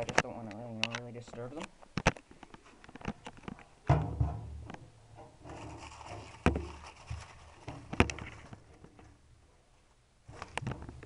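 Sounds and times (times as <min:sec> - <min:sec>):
camera rustling among plastic plants: 0:05.4 - 0:09.2, 0:10.2 - 0:11.0.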